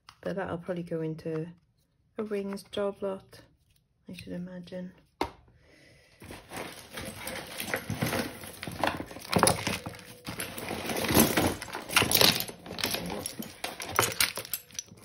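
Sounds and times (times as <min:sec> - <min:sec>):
jewellery clinking and rattling: 0:06.2 - 0:15.0.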